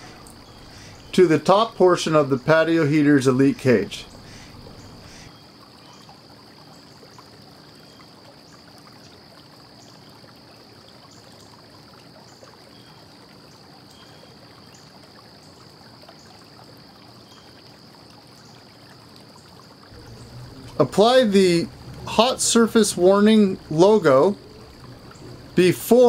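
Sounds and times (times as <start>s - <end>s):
low hiss: 0.0s - 6.0s, 19.4s - 26.0s
faint high-pitched whine: 20.0s - 26.0s.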